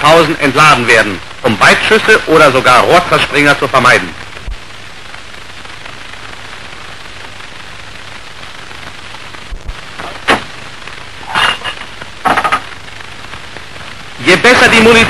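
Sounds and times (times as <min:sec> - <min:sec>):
film soundtrack hiss and crackle: 0:00.0 - 0:15.0
sharp crack: 0:08.0 - 0:13.7.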